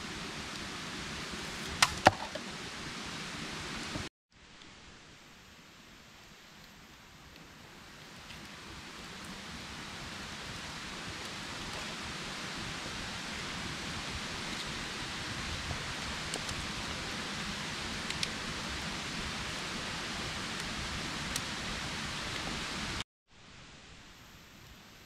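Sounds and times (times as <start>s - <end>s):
light rain hiss: 0.0s - 25.0s.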